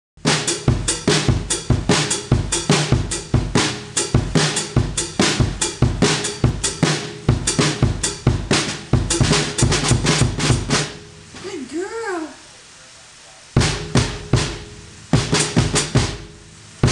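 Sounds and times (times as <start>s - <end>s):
fast drum kit playing: 0.2s - 12.0s, 13.4s - 16.9s.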